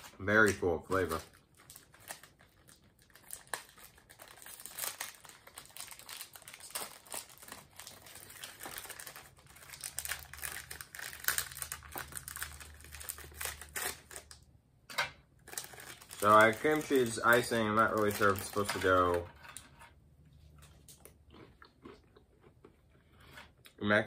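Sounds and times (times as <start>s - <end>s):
plastic packet crinkling: 0.0s - 14.4s, 15.4s - 19.6s.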